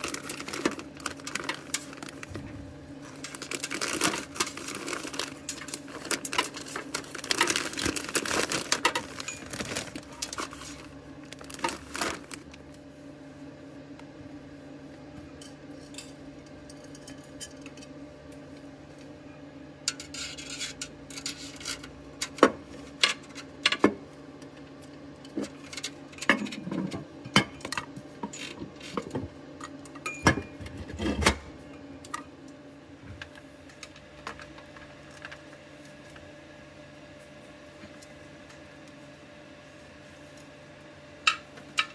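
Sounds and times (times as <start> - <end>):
plastic bags crinkling: 0.0 - 12.7
low steady hum: 0.0 - 41.9.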